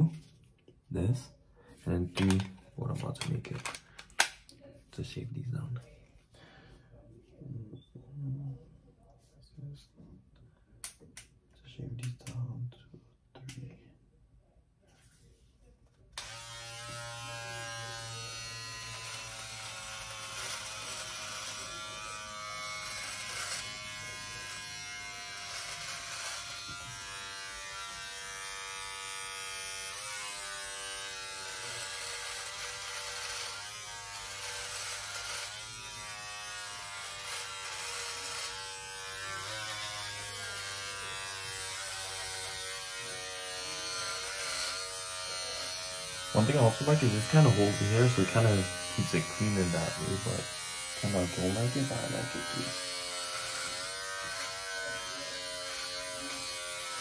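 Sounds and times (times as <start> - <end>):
electric shaver buzzing: 16.2 - 57.0.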